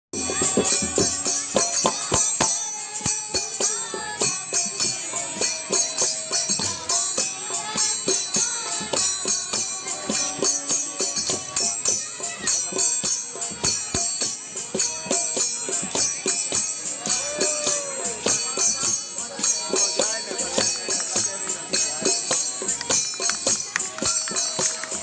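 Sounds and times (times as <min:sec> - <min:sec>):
drum strokes: 0:00.2 - 0:25.0
jingling hand clappers: 0:00.2 - 0:25.0.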